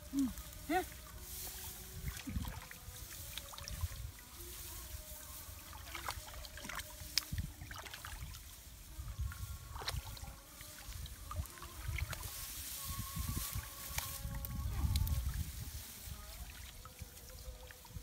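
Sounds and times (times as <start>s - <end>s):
hands splashing in muddy water: 1.3s - 4.3s, 5.6s - 8.5s, 9.7s - 12.4s.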